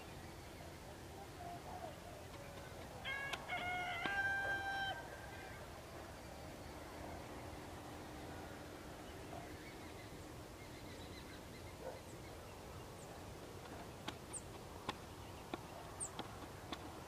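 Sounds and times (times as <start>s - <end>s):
steady low hiss: 0.0s - 17.0s
small birds chirping: 9.0s - 17.0s.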